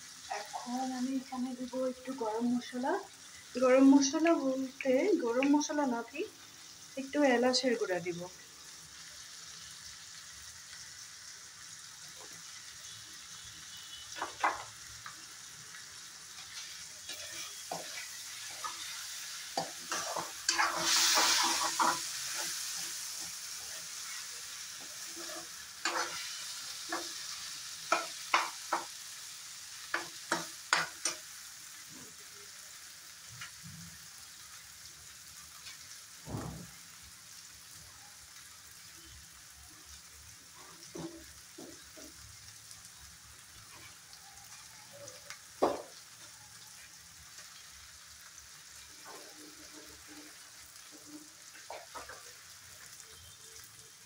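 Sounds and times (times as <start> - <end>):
vegetables sizzling in oil: 0.0 - 54.0
spatula scraping and tapping pan: 14.2 - 15.2, 16.4 - 19.0, 19.6 - 29.0, 29.8 - 31.2, 40.8 - 42.2, 51.5 - 52.4.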